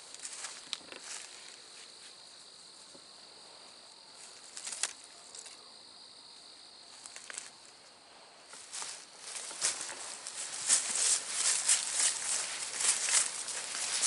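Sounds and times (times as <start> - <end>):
night insects trilling: 0.0 - 14.0
footsteps crunching through leaves: 8.5 - 14.0.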